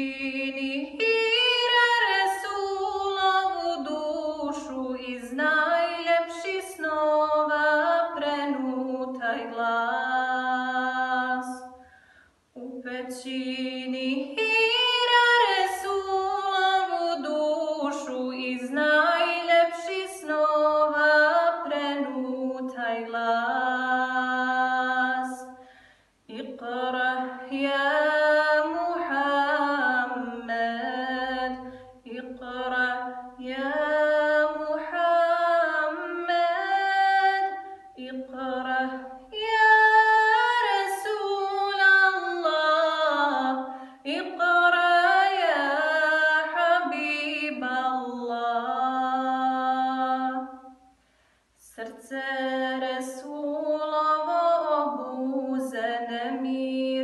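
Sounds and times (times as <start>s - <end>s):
woman singing unaccompanied: 0.0s - 11.8s, 12.6s - 25.6s, 26.3s - 50.7s, 51.6s - 57.0s.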